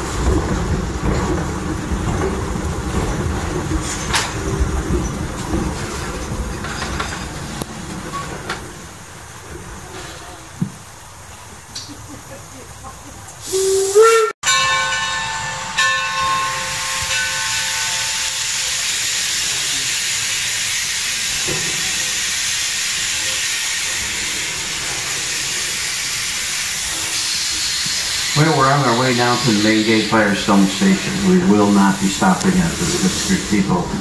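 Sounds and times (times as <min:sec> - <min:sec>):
steam venting hiss: 0:08.8 - 0:14.4, 0:16.4 - 0:34.0
steam locomotive whistle: 0:13.4 - 0:14.4.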